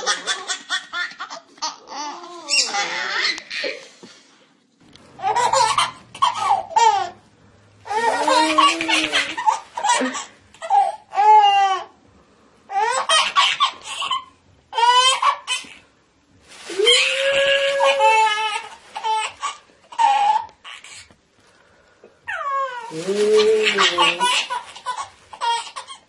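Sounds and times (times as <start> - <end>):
baby laughing: 0.0 - 3.9, 5.2 - 7.2, 7.9 - 11.8, 12.7 - 15.8, 17.7 - 21.1, 22.3 - 26.0.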